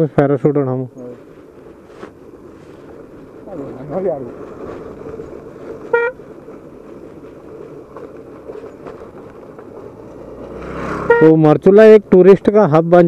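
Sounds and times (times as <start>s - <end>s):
motorcycle engine and road noise: 0.0s - 13.0s
short horn beep: 5.9s - 6.2s, 11.0s - 11.4s.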